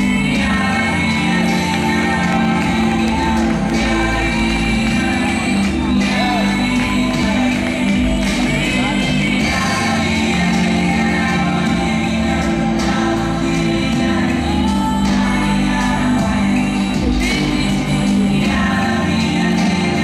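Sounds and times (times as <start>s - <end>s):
music with singing voice: 0.0s - 20.0s.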